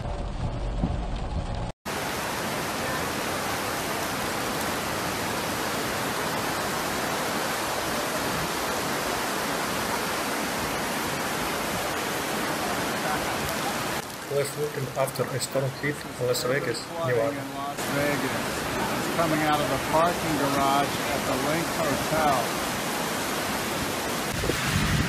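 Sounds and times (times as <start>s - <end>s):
floodwater rushing: 0.0s - 25.0s.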